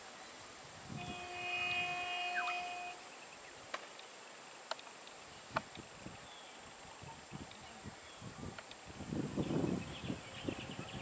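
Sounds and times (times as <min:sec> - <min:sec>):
held multi-pitched tone: 0:01.0 - 0:03.0
high-pitched insect drone: 0:01.0 - 0:03.1.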